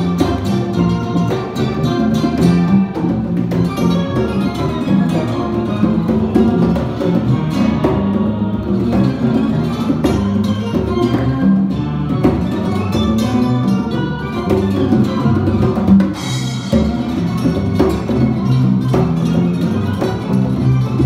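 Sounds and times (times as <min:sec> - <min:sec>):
acoustic guitar: 0:00.0 - 0:21.0
electric bass: 0:00.0 - 0:21.0
percussion: 0:00.0 - 0:21.0.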